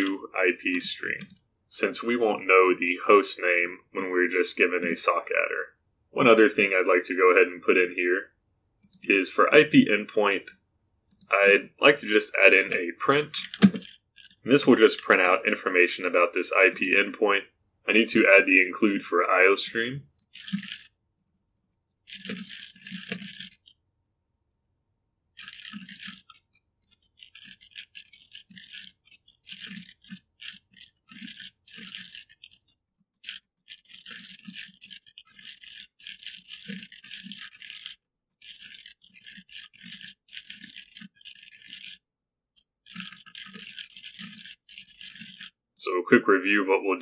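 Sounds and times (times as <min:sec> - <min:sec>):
computer keyboard typing: 0:00.0 - 0:01.4, 0:08.8 - 0:09.2, 0:11.1 - 0:11.4, 0:12.0 - 0:15.3, 0:20.1 - 0:20.9, 0:21.9 - 0:23.8, 0:25.4 - 0:42.0, 0:42.6 - 0:45.6.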